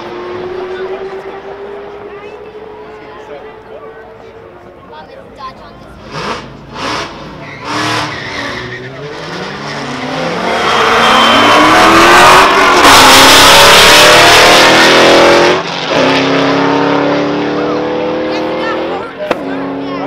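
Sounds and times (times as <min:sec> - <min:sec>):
car engine accelerating hard: 0:00.0 - 0:04.8, 0:05.6 - 0:20.0.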